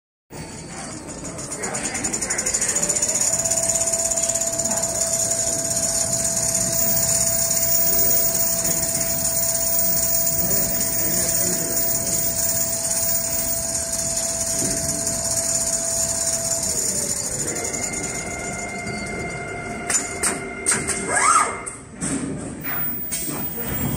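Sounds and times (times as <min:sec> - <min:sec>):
sewing machine needle stitching: 0:01.2 - 0:18.6
motor whine: 0:01.2 - 0:21.2.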